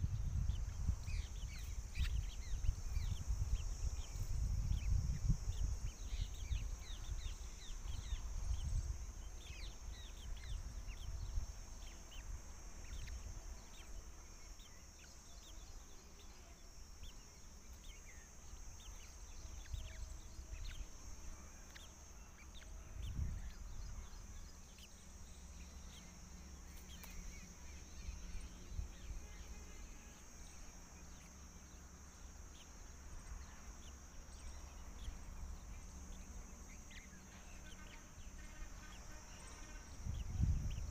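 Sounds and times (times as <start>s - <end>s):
low wind rumble: 0.0s - 14.1s, 22.6s - 26.6s, 39.8s - 40.9s
small birds chirping: 0.0s - 40.9s
steady high hiss: 0.0s - 40.9s.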